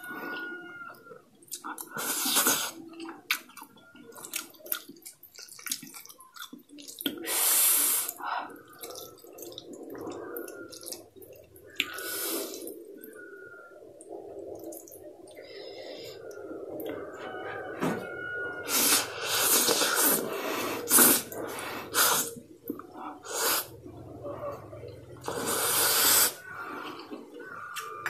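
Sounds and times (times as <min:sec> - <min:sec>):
moist chewing: 0:00.0 - 0:13.4, 0:14.0 - 0:17.1
person slurping noodles: 0:18.7 - 0:22.4, 0:25.2 - 0:26.4.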